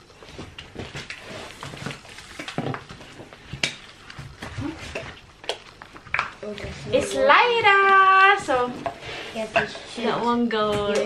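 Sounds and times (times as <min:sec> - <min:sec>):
packaging rustling: 0:00.0 - 0:06.8.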